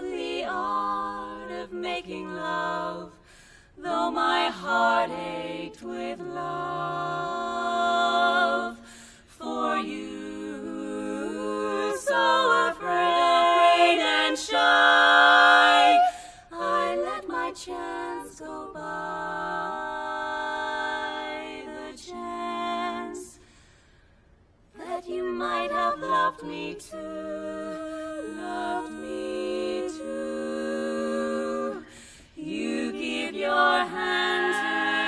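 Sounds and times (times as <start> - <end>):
women singing a cappella harmony: 0.0 - 24.0, 24.7 - 35.0.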